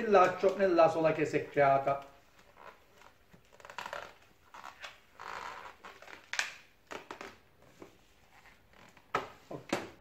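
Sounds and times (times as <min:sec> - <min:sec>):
balloons rubbing and scraping: 0:01.6 - 0:06.3.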